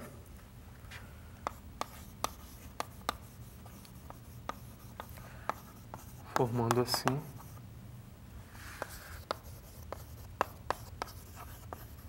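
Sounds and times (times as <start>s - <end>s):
chalk scraping: 1.4s - 7.6s, 8.5s - 12.0s
chalk tapping on blackboard: 1.4s - 7.6s, 8.7s - 12.0s.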